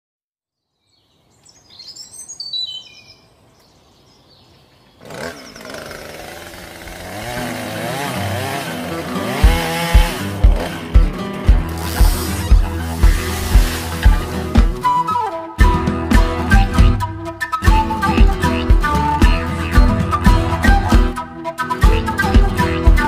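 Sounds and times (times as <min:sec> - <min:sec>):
falling bird chirps: 0:00.6 - 0:05.9
deep drum beats: 0:09.4 - 0:14.9
buzzing droning sweeping tone: 0:11.7 - 0:14.6.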